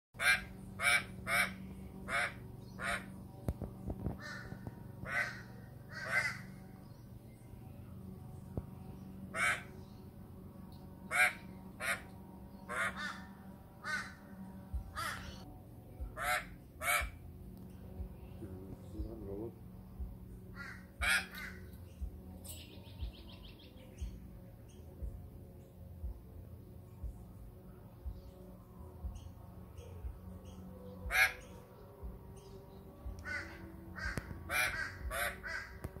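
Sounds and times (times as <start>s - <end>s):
magpie harsh alarm calls: 0.2s - 3.1s, 5.0s - 6.6s, 9.3s - 9.7s, 11.1s - 12.1s, 12.7s - 14.2s, 16.2s - 17.2s, 20.6s - 21.6s, 31.1s - 31.5s, 33.2s - 35.8s.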